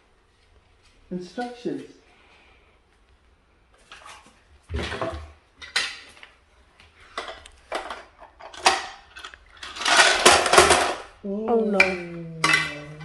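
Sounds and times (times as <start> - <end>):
plastic toy parts rattling: 7.2 - 13.0.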